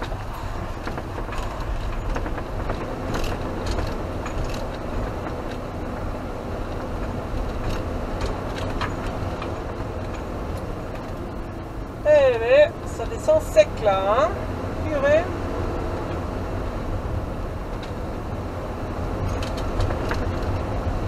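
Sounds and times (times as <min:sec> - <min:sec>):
light clicks and knocks: 0:00.0 - 0:11.3, 0:19.2 - 0:20.9
engine and road rumble: 0:00.0 - 0:21.0.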